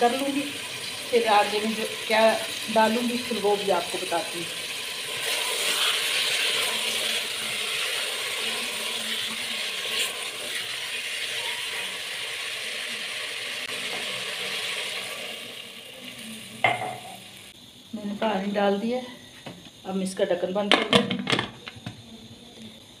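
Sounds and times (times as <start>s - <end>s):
water pouring into pot: 0.0s - 17.5s
meat sizzling in hot oil: 0.0s - 17.6s.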